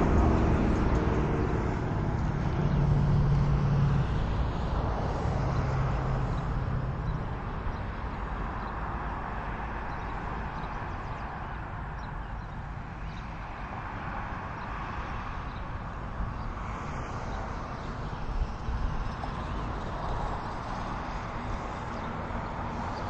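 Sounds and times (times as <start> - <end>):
traffic rush: 0.0 - 23.0
vehicle engine hum: 0.0 - 23.0.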